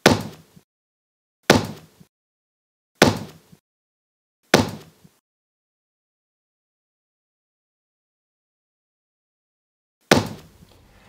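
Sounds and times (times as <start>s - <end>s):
heavy slam and thud effects: 3.0s - 3.4s, 10.1s - 11.0s.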